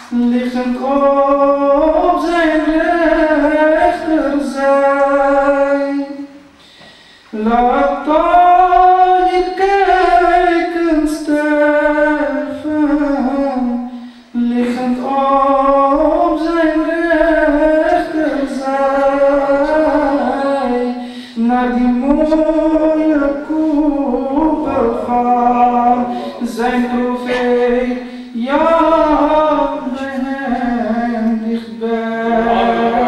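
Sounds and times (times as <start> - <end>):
man singing unaccompanied: 0.0 - 6.4, 7.3 - 33.0
man breathing: 6.6 - 7.4, 13.9 - 14.4, 21.0 - 21.4, 26.1 - 26.4, 28.0 - 28.4.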